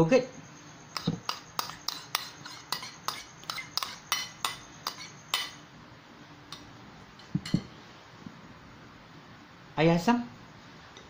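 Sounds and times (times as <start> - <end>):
metal spoon clinking on bowl: 1.0 - 5.6.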